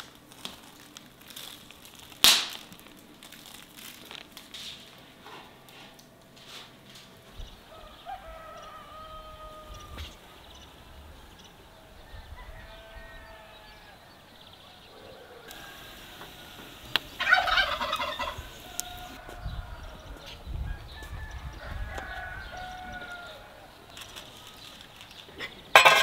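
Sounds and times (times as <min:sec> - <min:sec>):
fowl calling: 0:11.7 - 0:20.2.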